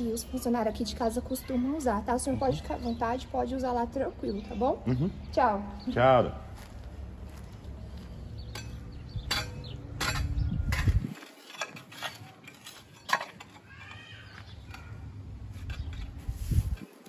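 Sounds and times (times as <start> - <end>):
footsteps on hard ground: 6.4 - 9.6
wind rumble on microphone: 9.0 - 11.2, 15.7 - 17.0.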